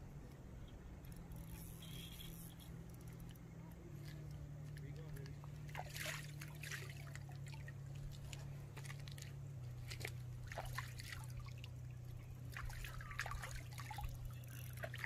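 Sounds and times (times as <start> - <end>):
steady low hum: 0.0 - 15.0
water trickling and dripping: 4.0 - 15.0.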